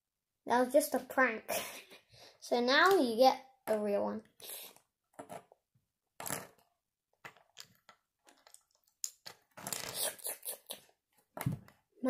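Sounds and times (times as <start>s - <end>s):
plastic pieces clicking on wooden table: 5.2s - 5.6s, 6.2s - 10.0s.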